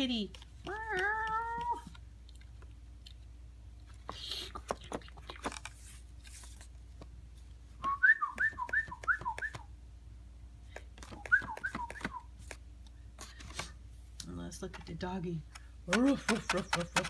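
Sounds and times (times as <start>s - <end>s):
person whistling bird-like chirps: 7.8s - 9.7s, 11.1s - 12.3s.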